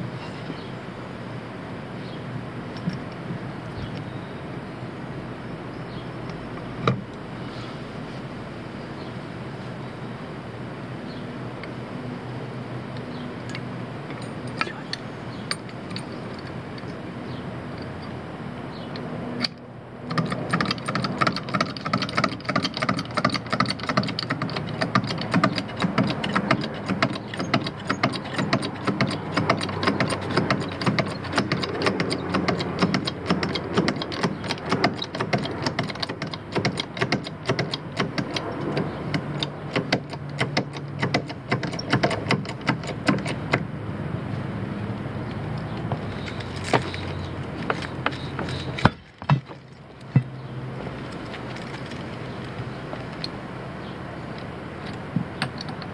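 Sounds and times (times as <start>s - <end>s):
vehicle jack clicking: 18.8s - 43.7s, 45.2s - 53.4s, 54.3s - 55.9s.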